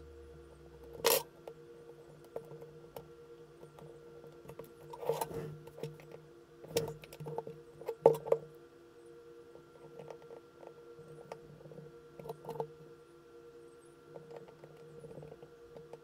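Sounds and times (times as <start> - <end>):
faint steady hum: 0.0 - 16.0
scraping rustle: 4.8 - 6.0.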